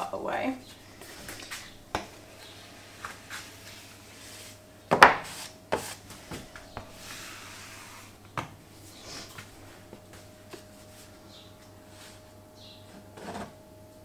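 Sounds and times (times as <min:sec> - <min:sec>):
soft brushing of flour: 0:02.3 - 0:08.2, 0:08.8 - 0:12.4.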